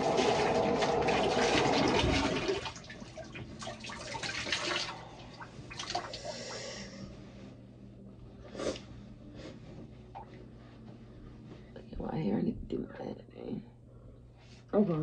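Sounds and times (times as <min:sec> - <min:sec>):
sink tap running water: 0:00.0 - 0:05.0.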